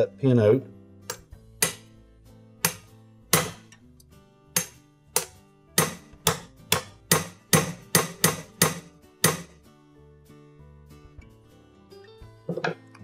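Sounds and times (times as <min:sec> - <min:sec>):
soft background music: 0:00.0 - 0:13.0
hammer tapping metal punch: 0:01.1 - 0:01.9, 0:02.6 - 0:03.8, 0:04.6 - 0:09.6.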